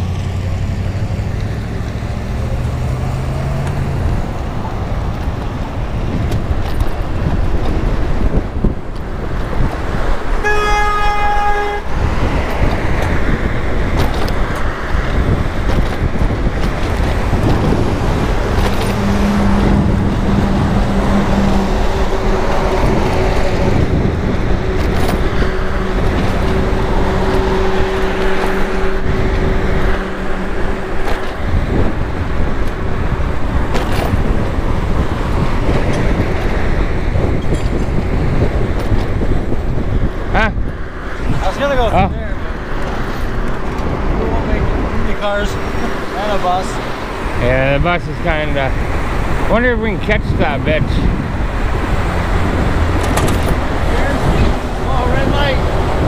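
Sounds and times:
low vehicle drone: 0:00.0 - 0:56.0
road traffic: 0:00.0 - 0:56.0
wind rumble: 0:00.0 - 0:56.0
car horn honk: 0:10.3 - 0:12.2.

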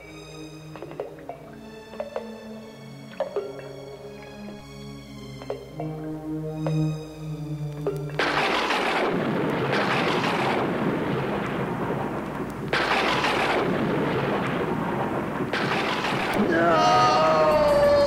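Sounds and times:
eerie music notes: 0:00.0 - 0:18.0
long thunder rumble: 0:08.2 - 0:16.8
thunder crashes: 0:08.2 - 0:18.0.

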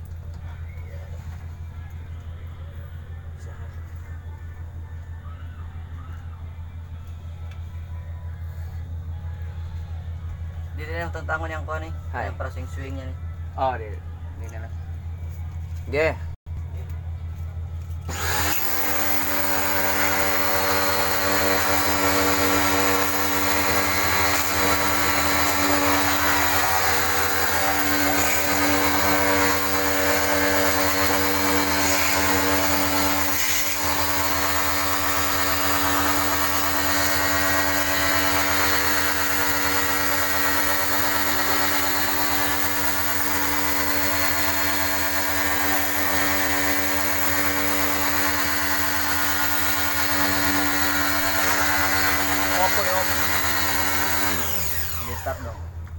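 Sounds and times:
pressure washer motor hum and hiss: 0:18.1 - 0:55.4.

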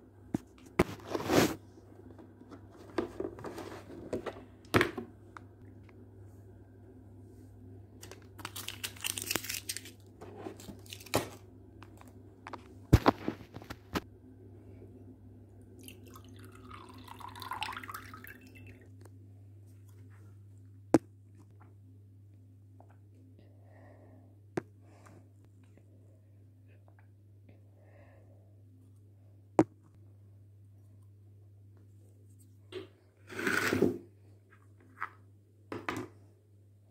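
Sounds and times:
juice pouring into glass: 0:15.8 - 0:18.8.

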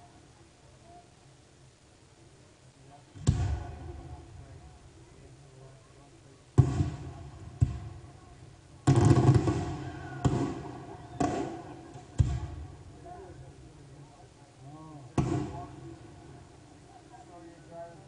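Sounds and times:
fireworks bursting with booms: 0:03.2 - 0:04.8, 0:06.6 - 0:13.0, 0:15.1 - 0:16.4.

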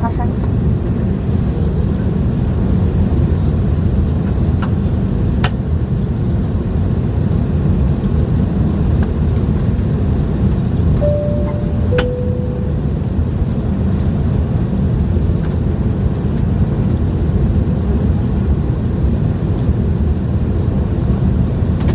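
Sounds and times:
aircraft cabin rumble: 0:00.0 - 0:21.9
steady tone: 0:11.0 - 0:13.6.

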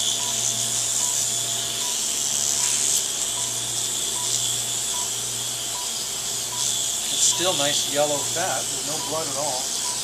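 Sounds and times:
suction hissing: 0:06.0 - 0:10.0.

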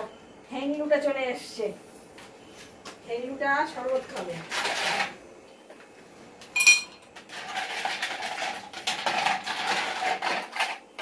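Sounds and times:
glass clinking: 0:06.6 - 0:07.0
glasses and utensils clattering: 0:06.6 - 0:07.1.

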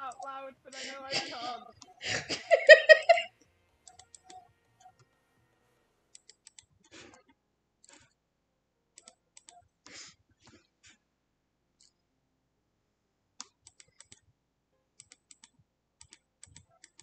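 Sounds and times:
keyboard and mouse clicks: 0:03.8 - 0:05.2, 0:06.1 - 0:08.2, 0:09.0 - 0:10.8, 0:11.8 - 0:12.1, 0:13.4 - 0:14.3, 0:15.0 - 0:17.0.

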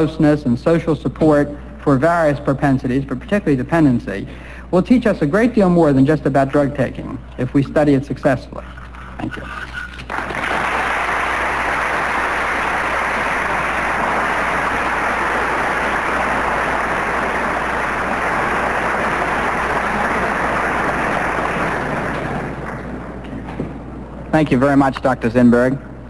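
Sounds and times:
audience applauding: 0:09.9 - 0:23.4.

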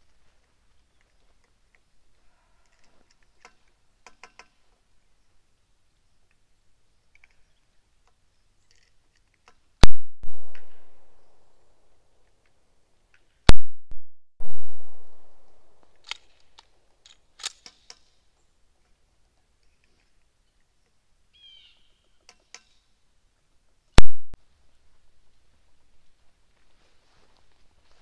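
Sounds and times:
faint clicks: 0:07.1 - 0:09.6.

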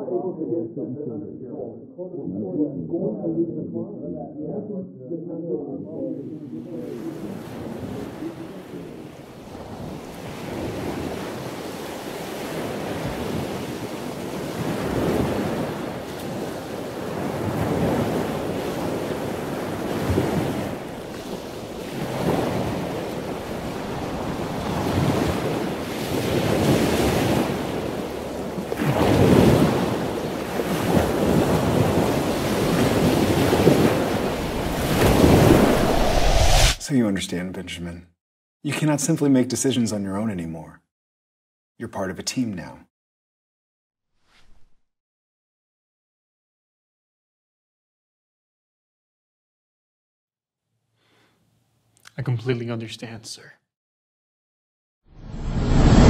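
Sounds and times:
ocean waves washing: 0:06.5 - 0:36.8.

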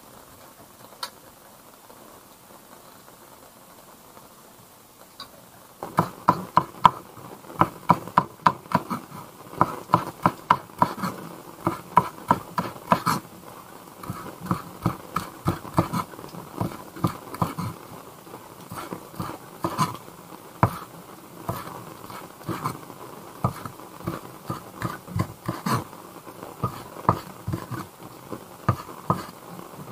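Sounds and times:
cleaver chopping on wooden board: 0:05.9 - 0:07.0, 0:07.6 - 0:13.2, 0:14.0 - 0:17.8, 0:18.7 - 0:20.0, 0:20.6 - 0:20.9, 0:21.5 - 0:22.8, 0:23.4 - 0:25.8, 0:26.6 - 0:27.9, 0:28.7 - 0:29.3.

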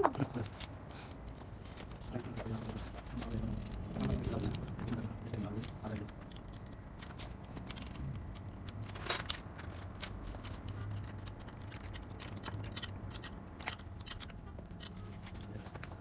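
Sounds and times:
metallic clicks and rattles: 0:03.2 - 0:16.0.

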